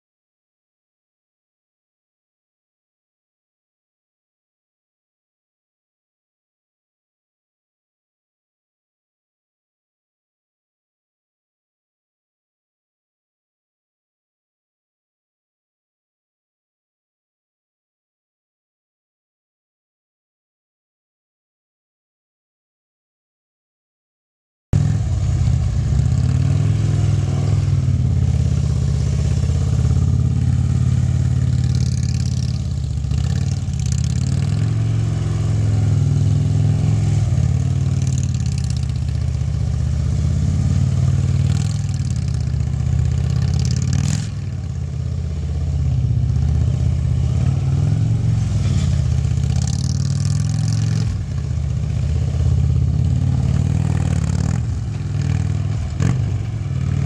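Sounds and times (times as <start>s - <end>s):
motorcycle engine running: 24.8s - 57.0s.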